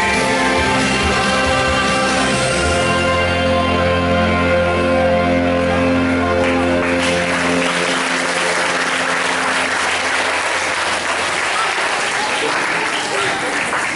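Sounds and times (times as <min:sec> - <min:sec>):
recorded music: 0:00.0 - 0:11.6
audience applauding: 0:06.3 - 0:13.9.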